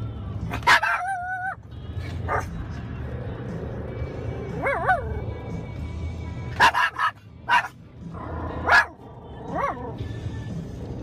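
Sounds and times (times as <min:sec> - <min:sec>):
truck cabin road rumble: 0:00.0 - 0:11.0
dog barking: 0:00.5 - 0:01.6, 0:02.3 - 0:02.5, 0:04.6 - 0:05.1, 0:06.6 - 0:07.8, 0:08.5 - 0:10.0
dog yowling: 0:00.5 - 0:01.6.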